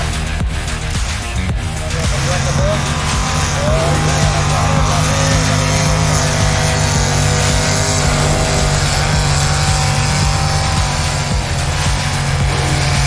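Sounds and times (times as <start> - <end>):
tractor engine running hard: 0.0 - 13.0.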